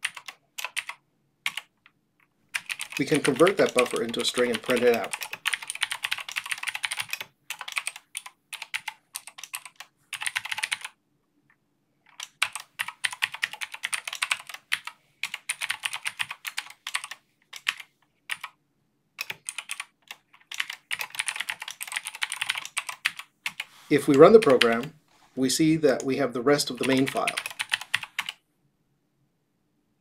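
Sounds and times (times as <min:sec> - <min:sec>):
typing on computer keyboard: 0:00.0 - 0:11.0, 0:12.1 - 0:18.6, 0:19.2 - 0:24.9, 0:26.7 - 0:28.4.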